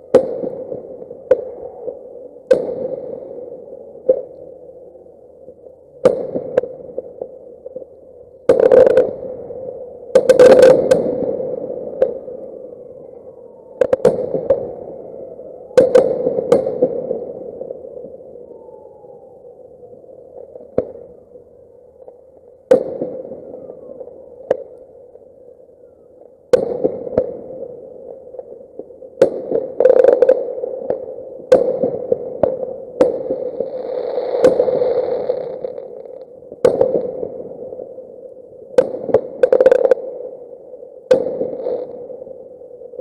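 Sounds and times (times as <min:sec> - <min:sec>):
fireworks bangs: 0:10.1 - 0:12.2, 0:15.8 - 0:17.3, 0:29.2 - 0:37.4
fireworks crackling: 0:10.2 - 0:12.2, 0:29.2 - 0:37.4, 0:38.8 - 0:40.1, 0:41.1 - 0:42.1.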